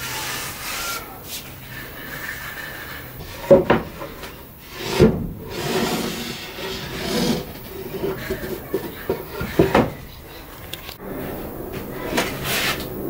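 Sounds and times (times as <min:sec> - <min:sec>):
hand rubbing wooden tabletop: 0:00.3 - 0:10.0.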